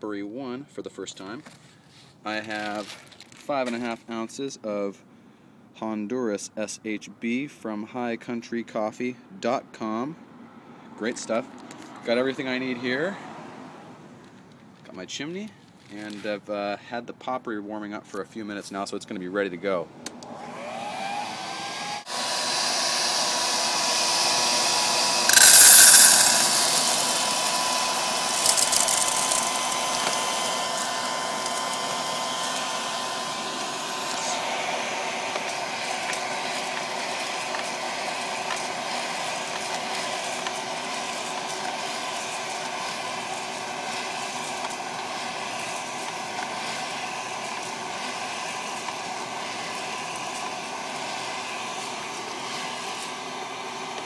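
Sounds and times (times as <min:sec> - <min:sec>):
popcorn popper blower running: 0:20.2 - 0:54.0
faint ticking of beans tumbling: 0:25.3 - 0:30.7
loud rushing clatter of beans: 0:25.3 - 0:32.6.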